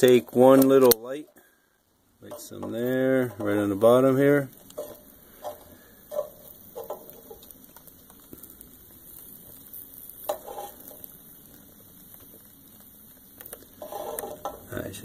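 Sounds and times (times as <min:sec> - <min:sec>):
fire crackling: 0:00.0 - 0:15.0.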